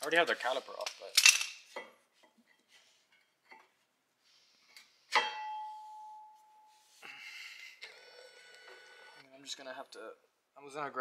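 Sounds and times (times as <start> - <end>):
ringing metallic clank: 5.1 - 6.4.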